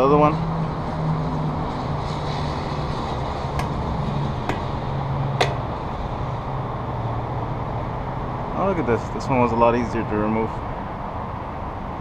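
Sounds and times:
hammer tapping metal: 4.5 - 4.8, 5.4 - 5.7.

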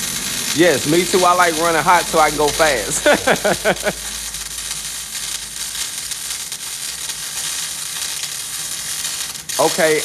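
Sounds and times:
welding arc buzzing: 0.0 - 10.0.

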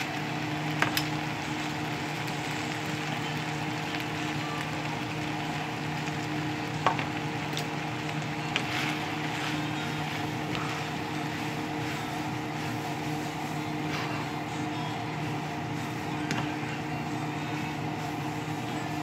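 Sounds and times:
noodles sizzling in a frying pan: 0.0 - 19.0.

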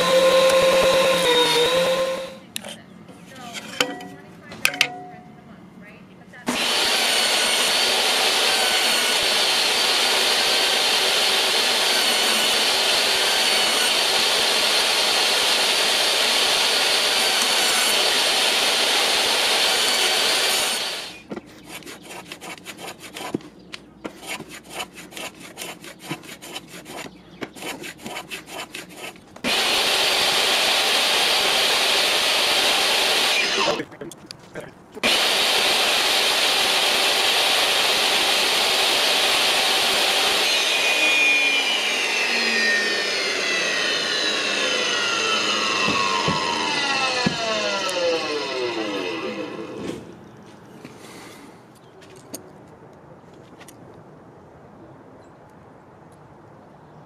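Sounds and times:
hand plane scraping strokes: 0.0 - 2.4, 19.6 - 30.6
table saw ripping wood: 0.0 - 2.4, 6.5 - 23.4, 24.1 - 33.8, 35.0 - 50.2.

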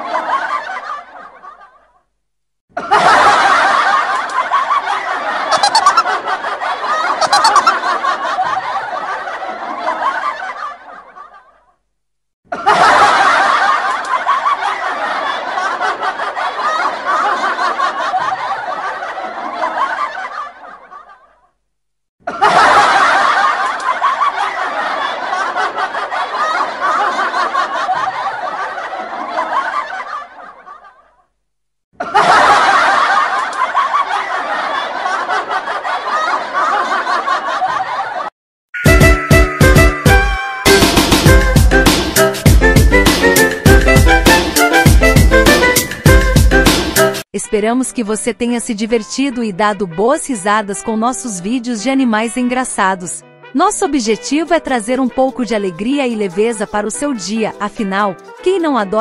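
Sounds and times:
canned audience laughter: 0.0 - 2.0, 2.8 - 11.7, 12.5 - 21.4, 22.2 - 31.2, 32.0 - 38.3.

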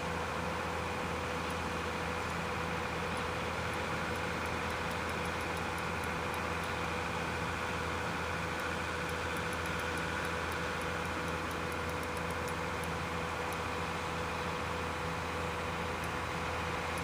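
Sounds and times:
background hum and hiss: 0.0 - 17.0
constant mid-pitched tone: 0.0 - 17.0
faint high ticks: 3.1 - 6.8, 8.5 - 13.7, 16.0 - 16.2.

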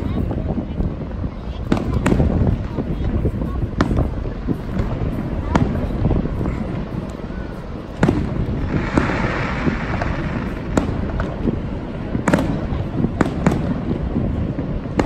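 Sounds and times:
low rumble: 2.1 - 15.0
firework shells bursting: 7.9 - 13.8.

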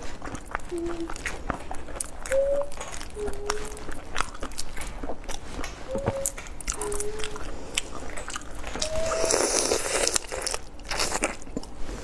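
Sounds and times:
wet slurping: 0.0 - 12.0.

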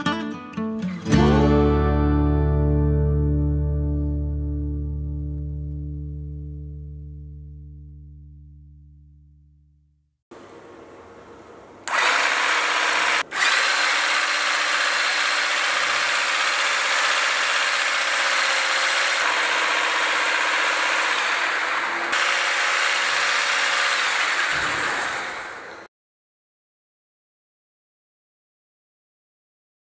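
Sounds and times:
electric motor buzzing: 11.8 - 25.9.

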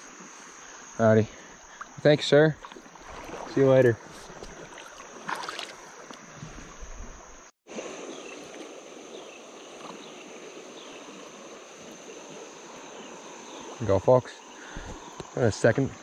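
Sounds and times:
high insect trill: 0.0 - 16.0
river water rushing: 2.6 - 6.1.

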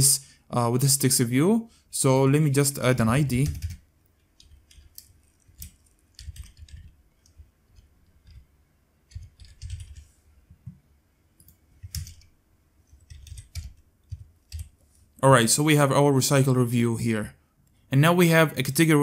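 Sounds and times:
computer keyboard typing: 3.0 - 10.1, 11.4 - 14.8.

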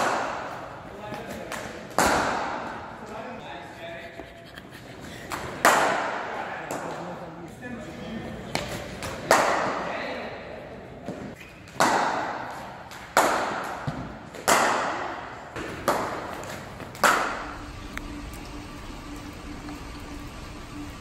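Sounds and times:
faint steady hum: 16.0 - 21.0.

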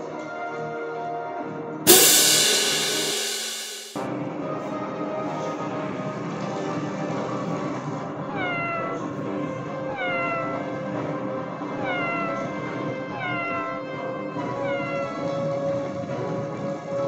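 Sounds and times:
cat meowing: 8.4 - 9.2, 9.9 - 10.7, 11.8 - 13.9, 14.5 - 15.5.

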